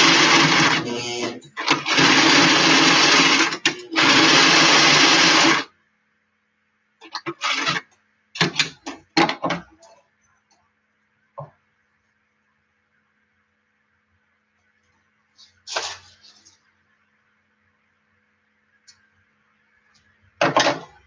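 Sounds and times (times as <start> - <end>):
sewing machine stitching: 0.0 - 5.7, 7.0 - 8.8.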